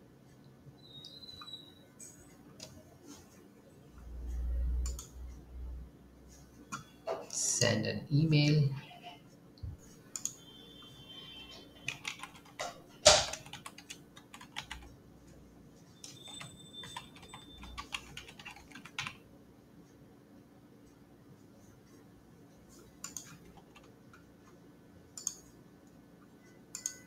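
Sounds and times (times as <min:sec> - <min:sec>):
keyboard typing: 0:04.3 - 0:05.2, 0:10.1 - 0:10.5, 0:11.5 - 0:15.0, 0:16.0 - 0:19.2, 0:22.9 - 0:24.3, 0:25.1 - 0:25.6, 0:26.5 - 0:27.0.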